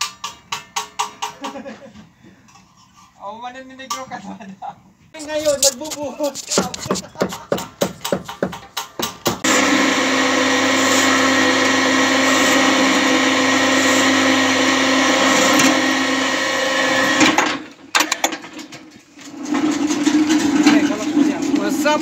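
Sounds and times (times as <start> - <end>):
knocks: 6.6 - 9.4
electric hoist motor humming: 9.4 - 17.7.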